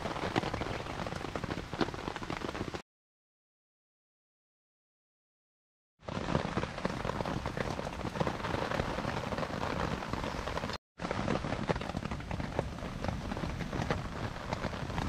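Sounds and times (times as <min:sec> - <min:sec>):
rain on a tarp: 0:00.0 - 0:02.8, 0:06.0 - 0:15.0.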